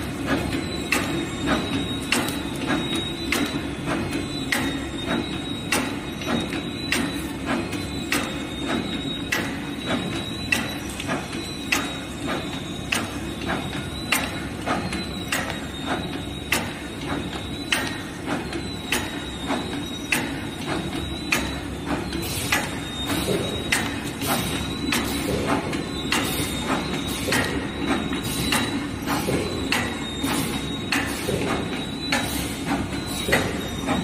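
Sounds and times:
packaging machine clacking: 0.0 - 34.0.

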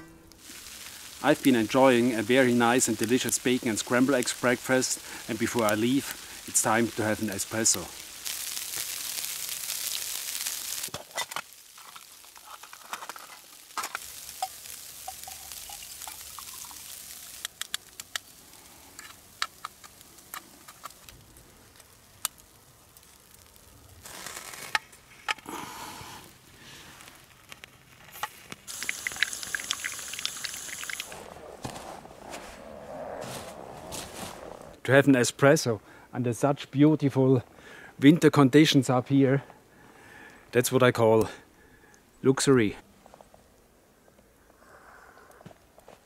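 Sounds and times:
steady hiss: 0.0 - 32.4
espresso sputtering from spout: 28.7 - 31.1.

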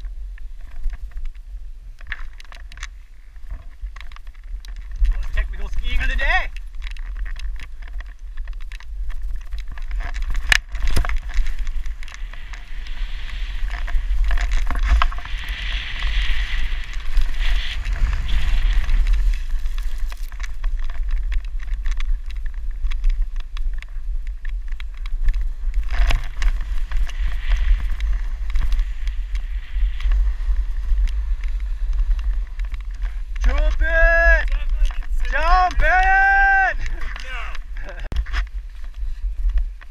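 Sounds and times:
wind rumbling on microphone: 0.0 - 39.9
snowboard scraping over snow: 8.8 - 39.9.

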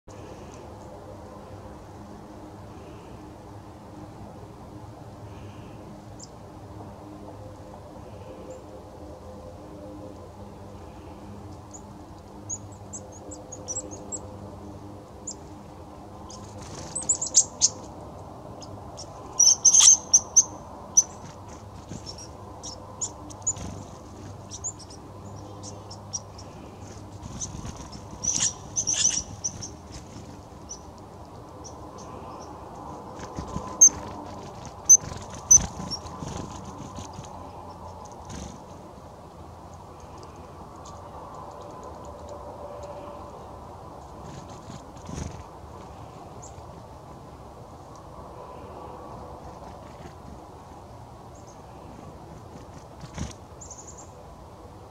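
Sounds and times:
chickadees calling: 11.7 - 14.6, 15.2 - 38.6.

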